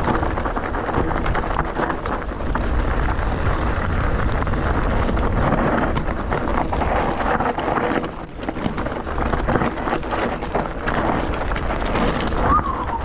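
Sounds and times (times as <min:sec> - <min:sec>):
wind buffeting microphone: 0:00.0 - 0:13.0
small knocks and rattles: 0:04.3 - 0:12.4.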